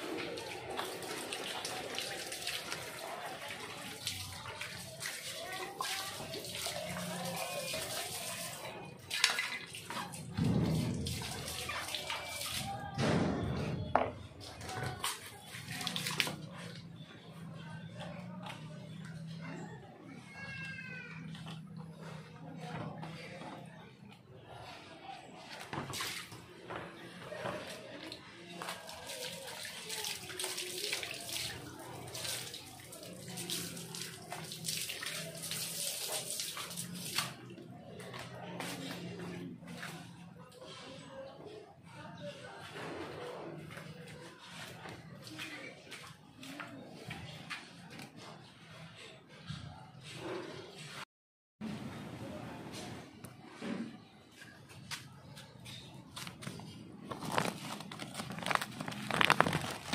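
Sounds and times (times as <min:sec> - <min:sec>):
water pouring into plastic tank: 0:00.1 - 0:12.9, 0:28.6 - 0:37.5, 0:57.1 - 0:59.9.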